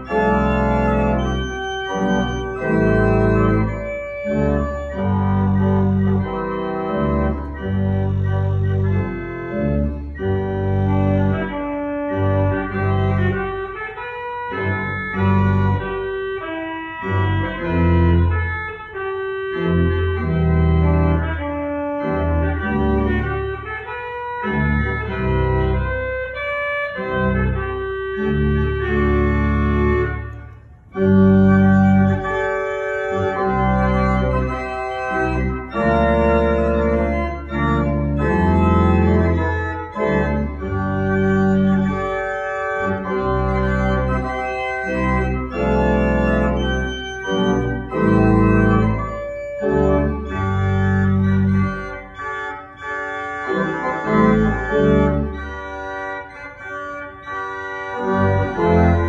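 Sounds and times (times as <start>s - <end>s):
church organ playing chords: 0.0s - 59.0s.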